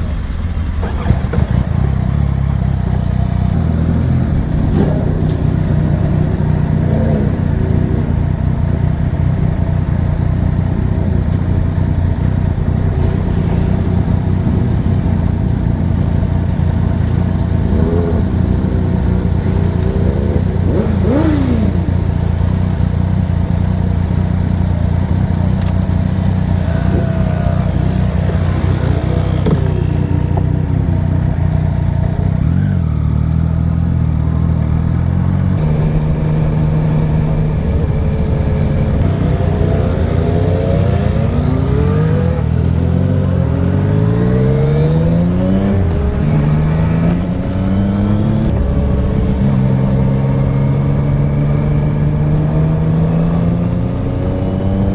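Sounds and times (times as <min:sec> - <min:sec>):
motorcycles revving: 0:00.0 - 0:54.9.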